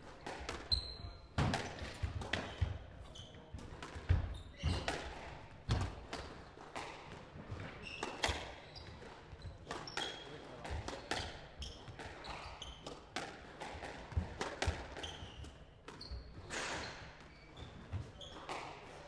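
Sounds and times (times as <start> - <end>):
shoes squeaking on wooden floor: 0.7 - 4.9, 14.9 - 18.7
squash ball hits: 1.4 - 2.8, 3.8 - 8.5, 9.6 - 15.1.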